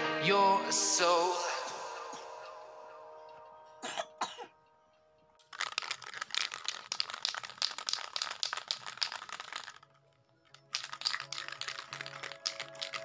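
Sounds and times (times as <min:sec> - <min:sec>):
spray can rattling: 0:05.4 - 0:13.0.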